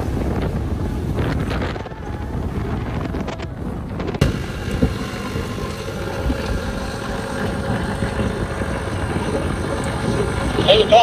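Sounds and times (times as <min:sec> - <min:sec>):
boat wake churning: 0:00.0 - 0:11.0
motorboat engine running: 0:00.0 - 0:11.0
wind buffeting microphone: 0:00.0 - 0:11.0.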